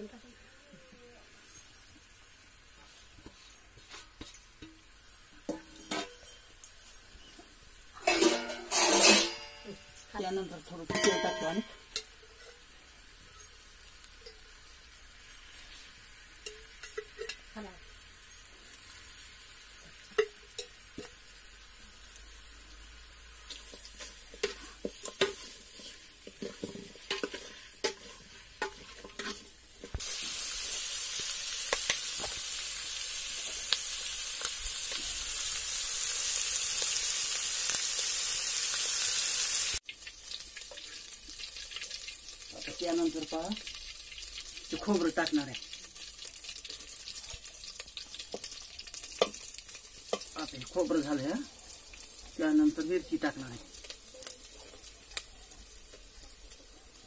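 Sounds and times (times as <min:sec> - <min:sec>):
meat frying in a pot: 0:00.0 - 0:57.0
loud sizzle: 0:01.0 - 0:57.0
spoon scraping a pot: 0:08.0 - 0:09.6, 0:23.5 - 0:30.0.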